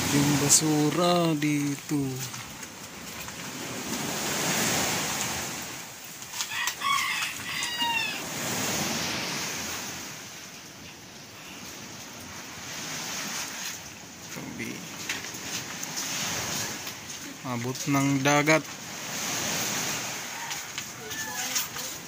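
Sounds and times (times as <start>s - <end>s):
sea surf rushing: 0.0s - 22.0s
rooster crowing: 6.4s - 8.6s, 19.9s - 21.8s.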